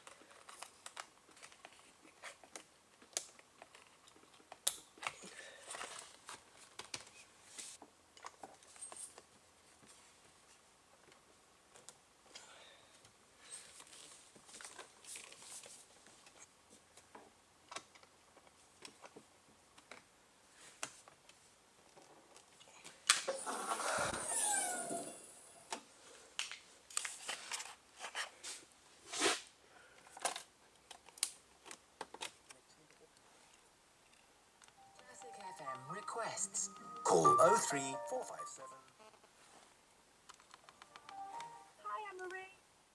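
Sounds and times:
scrape with squeaky tones: 0:23.3 - 0:25.6.

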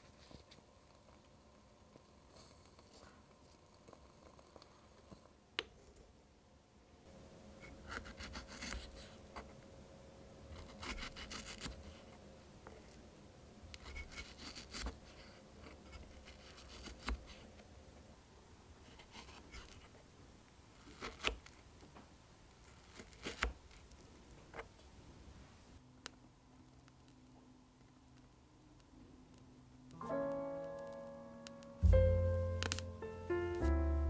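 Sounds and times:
knife slicing strawberry: 0:10.5 - 0:12.0, 0:15.8 - 0:17.4, 0:20.8 - 0:21.5, 0:22.7 - 0:23.8.

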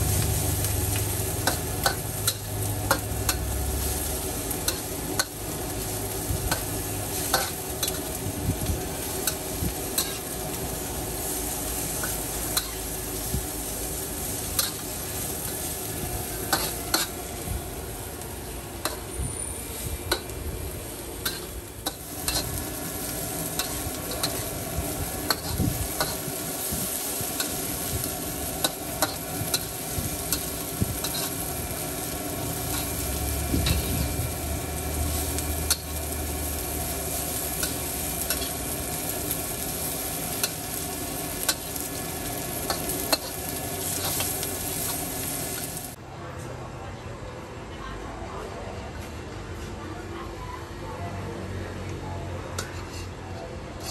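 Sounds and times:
metal spatula scraping a wok: 0:00.0 - 0:13.0, 0:13.6 - 0:17.5, 0:20.9 - 0:45.8, 0:52.6 - 0:53.9
noodles sizzling in a wok: 0:00.0 - 0:46.0.

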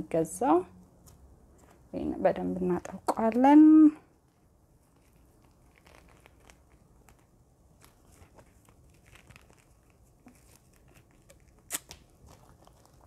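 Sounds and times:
mask rustling and crinkling: 0:00.9 - 0:02.0, 0:04.0 - 0:13.0.

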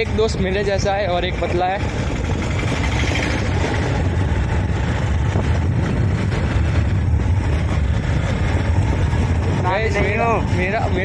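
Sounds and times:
motorcycle engine: 0:00.0 - 0:11.0
wind noise: 0:00.0 - 0:11.0.

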